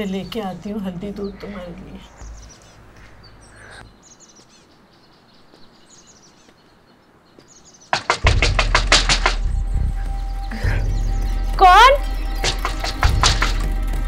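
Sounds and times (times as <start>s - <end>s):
faint bird chirps: 0.0s - 7.9s
rapid knocks on a door: 7.9s - 9.5s, 12.4s - 13.7s.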